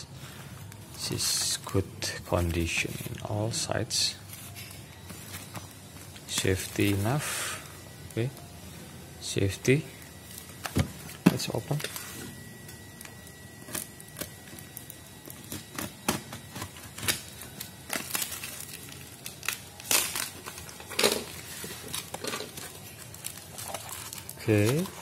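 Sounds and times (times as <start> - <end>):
plastic crinkling: 9.9 - 25.0
utility knife cutting plastic wrap: 13.6 - 25.0.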